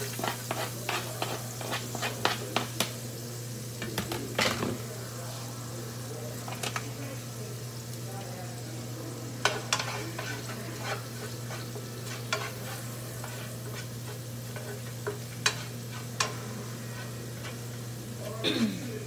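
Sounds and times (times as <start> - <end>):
garlic sizzling in butter: 0.0 - 19.0
utensil clicking against pan: 9.4 - 16.4.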